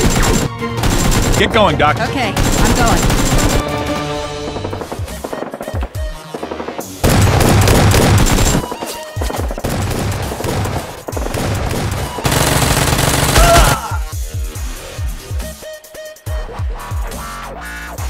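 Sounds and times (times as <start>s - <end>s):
automatic gunfire sound effects: 2.4s - 3.7s, 4.4s - 13.7s.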